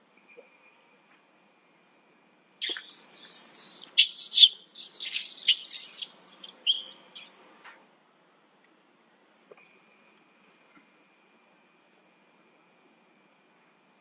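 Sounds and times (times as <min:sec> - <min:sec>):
macaques screaming: 0:02.6 - 0:07.4.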